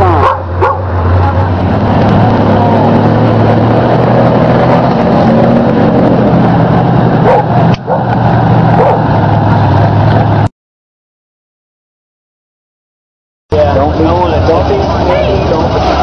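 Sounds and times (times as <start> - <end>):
truck engine running: 0.0 - 10.5, 13.5 - 16.0.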